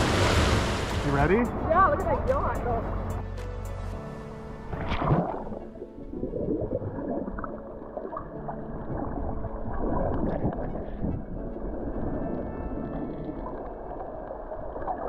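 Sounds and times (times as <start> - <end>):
splash into water: 4.7 - 5.8.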